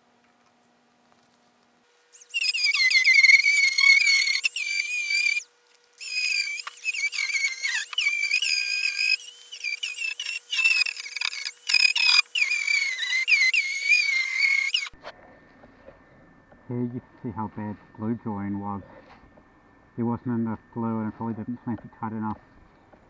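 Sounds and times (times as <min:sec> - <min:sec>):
electric grinder on wood: 0:02.2 - 0:15.0.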